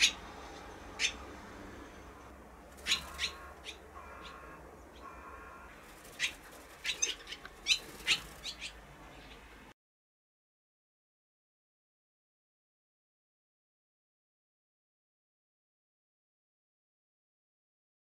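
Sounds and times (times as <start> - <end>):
swallows chirping: 0.9 - 1.2, 2.8 - 9.6.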